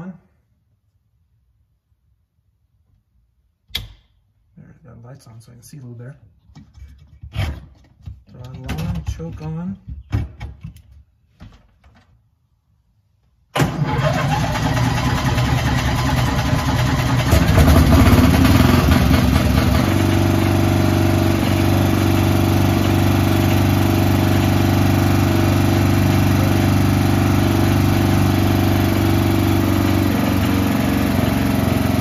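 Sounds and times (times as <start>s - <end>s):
gasoline engine starting and idling: 13.5s - 32.0s.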